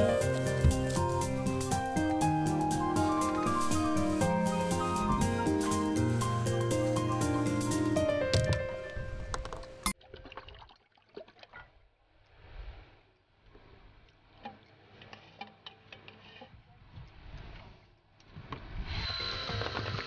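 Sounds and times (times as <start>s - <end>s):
thick liquid pouring into bucket: 10.0s - 11.7s.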